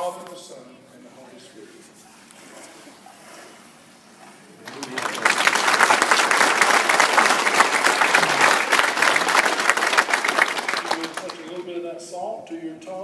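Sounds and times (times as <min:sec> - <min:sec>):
congregation applauding: 0:04.6 - 0:11.8.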